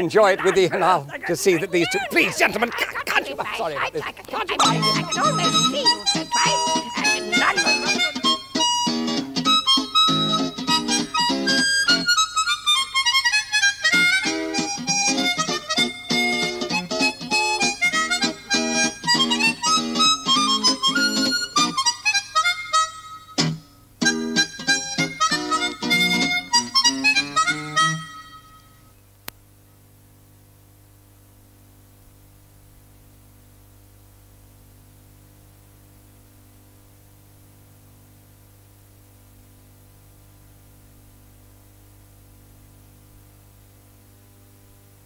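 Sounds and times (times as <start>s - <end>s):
low steady hum: 0.0s - 8.9s.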